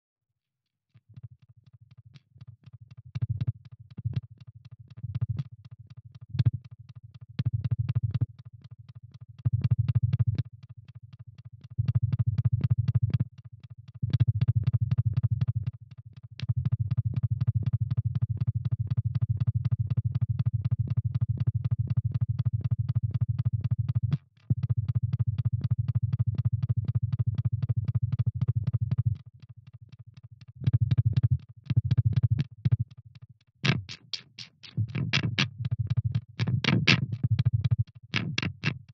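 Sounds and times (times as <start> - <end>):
rapid electronic clicks: 33.6 - 38.9.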